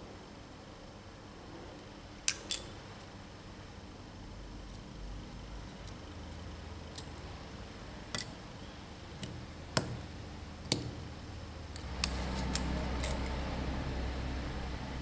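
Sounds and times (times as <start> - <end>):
sharp metallic pliers clicks: 2.3 - 2.7.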